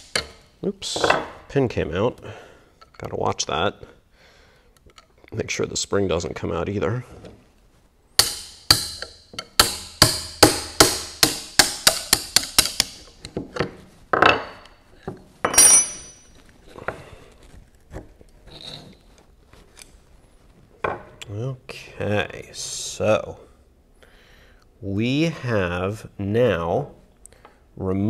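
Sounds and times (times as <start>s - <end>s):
metallic ring: 15.4s - 16.3s
metal clinks: 15.4s - 16.4s.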